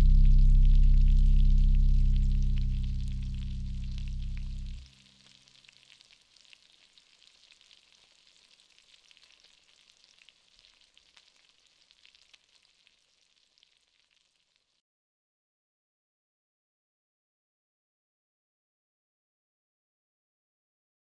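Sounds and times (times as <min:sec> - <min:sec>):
low sustained drone: 0:00.0 - 0:04.8
crackling hiss of tiny clicks: 0:04.0 - 0:14.8.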